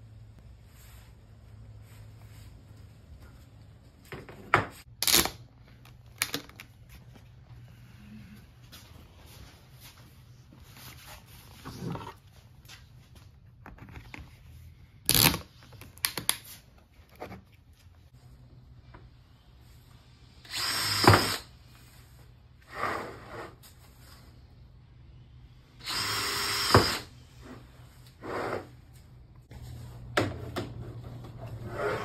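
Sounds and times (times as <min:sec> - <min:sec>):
cordless drill boring through plastic: 0:20.4 - 0:21.5, 0:25.8 - 0:27.1.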